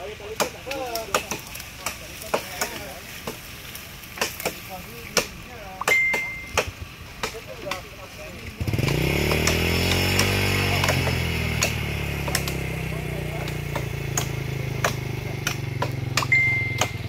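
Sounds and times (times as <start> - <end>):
small petrol engine idling: 2.8 - 17.0
sharp clicks: 8.8 - 12.7, 13.4 - 17.0.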